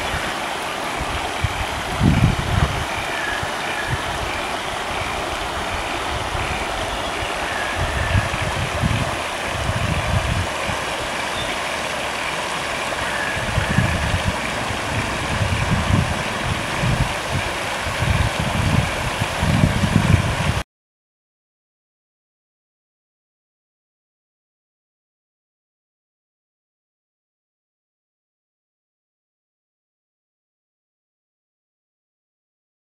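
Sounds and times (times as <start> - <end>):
river water rushing over rocks: 0.0 - 20.6
wind buffeting microphone: 1.0 - 11.5, 12.9 - 20.6.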